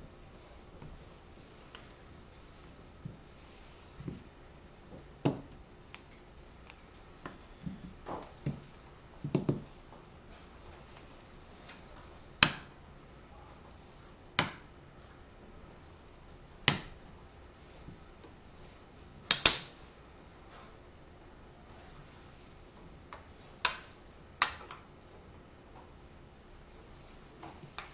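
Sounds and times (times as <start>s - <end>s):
blocks knocking on tabletop: 9.2s - 9.7s.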